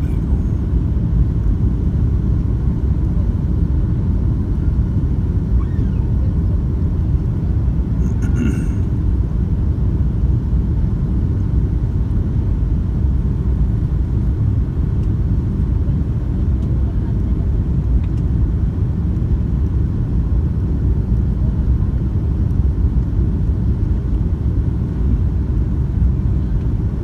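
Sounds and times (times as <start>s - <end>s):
airliner cabin engine rumble: 0.0s - 27.0s.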